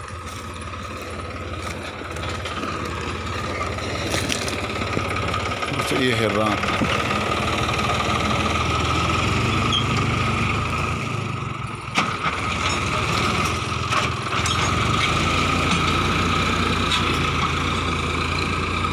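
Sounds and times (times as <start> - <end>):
tractor diesel engine under load: 0.0 - 18.9.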